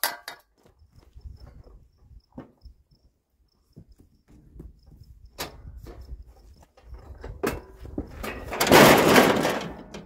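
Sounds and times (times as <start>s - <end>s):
lawn tractor frame knocks and rattles: 0.0s - 0.8s, 3.8s - 10.0s.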